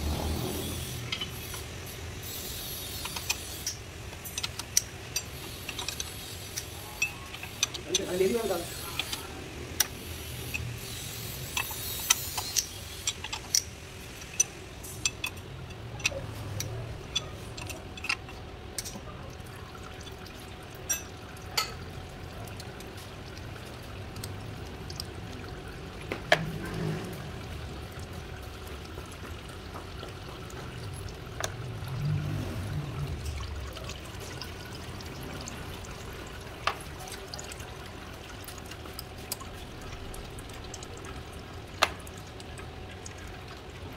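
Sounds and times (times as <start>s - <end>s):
fluid dripping: 0.0s - 43.9s
metal tool clicks and clinks: 11.5s - 19.0s.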